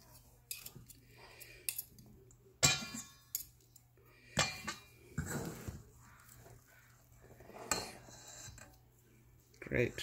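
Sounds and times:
fork clinking against metal bowl: 0:02.6 - 0:03.6
fork scraping metal bowl: 0:04.3 - 0:08.8.

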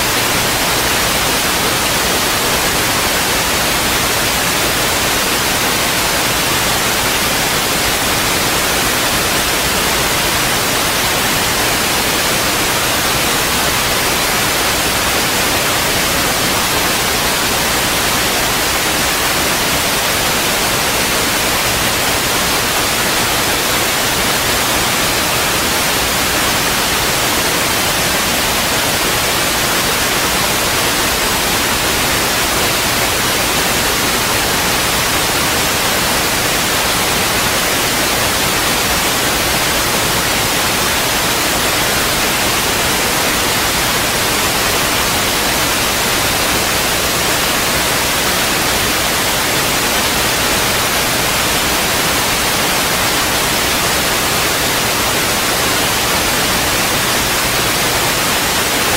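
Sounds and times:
loud static hiss: 0:00.0 - 0:58.9.

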